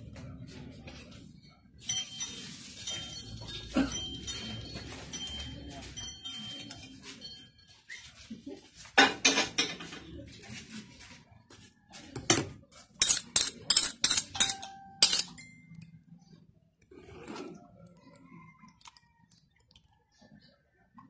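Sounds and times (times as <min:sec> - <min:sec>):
metal ladle clinking against pot: 0:13.0 - 0:15.8.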